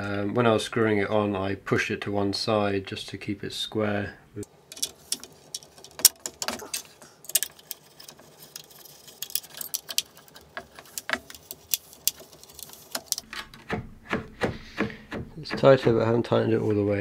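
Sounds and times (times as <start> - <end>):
light clicks and clinks of assembly: 4.7 - 13.3.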